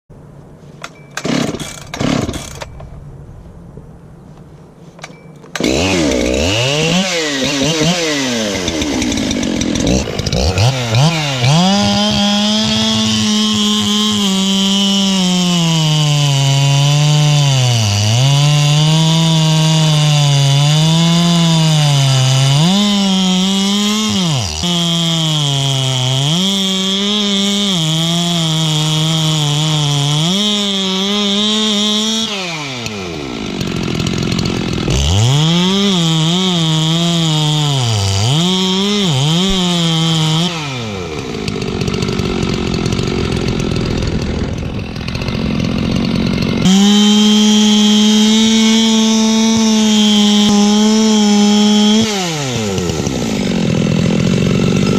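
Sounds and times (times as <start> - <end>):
chainsaw pull-starting: 0.8 - 2.9, 5.0 - 54.9
chainsaw revving and cutting wood: 1.2 - 2.7, 5.5 - 54.9.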